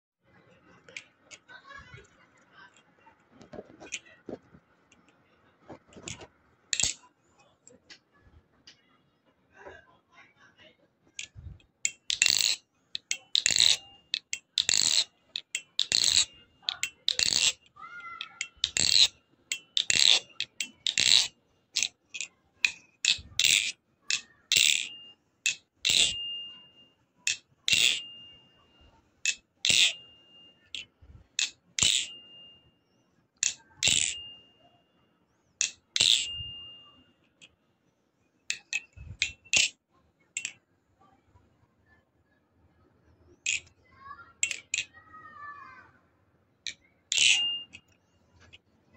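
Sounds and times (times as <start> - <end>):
metal trainer knife clacking: 3.8 - 4.2, 6.0 - 7.1, 11.2 - 28.4, 29.2 - 32.6, 33.4 - 34.6, 35.6 - 37.6, 38.5 - 40.6, 43.4 - 43.7, 44.4 - 45.0, 46.7 - 48.6.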